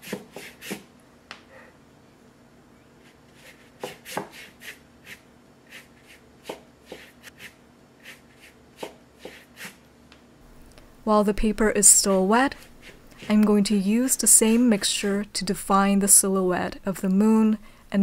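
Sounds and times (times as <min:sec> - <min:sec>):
brush strokes on paper: 0:11.8 - 0:13.4.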